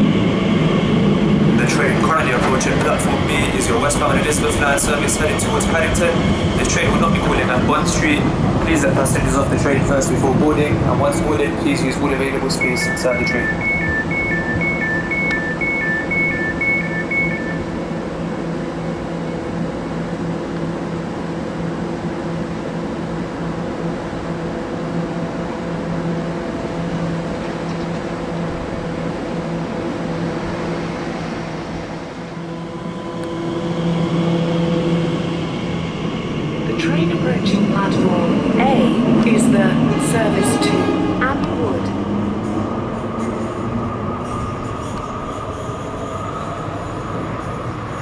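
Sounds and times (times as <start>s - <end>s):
electric train humming: 0.0s - 48.0s
train whine pulling away: 0.0s - 48.0s
two-tone door-closing beeps: 12.5s - 17.7s.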